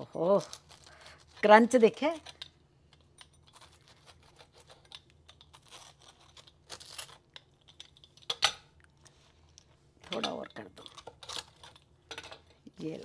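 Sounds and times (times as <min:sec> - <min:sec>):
pizza cutter crunching tortilla: 0:03.2 - 0:08.2.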